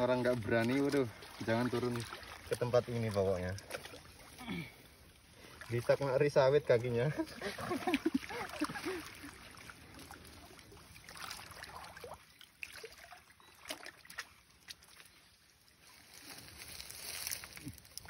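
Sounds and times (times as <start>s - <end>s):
shallow water splashing: 0.0s - 17.4s
small drips and clicks: 0.2s - 5.8s, 9.9s - 15.3s.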